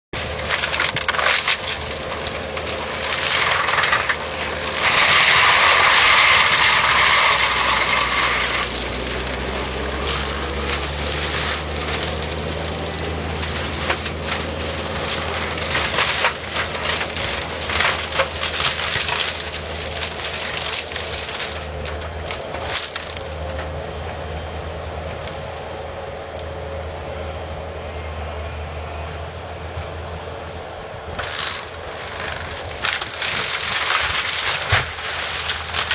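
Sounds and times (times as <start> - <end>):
wood cracking and splintering: 0.2 - 23.8, 31.2 - 35.9
loader engine drone: 0.2 - 35.9.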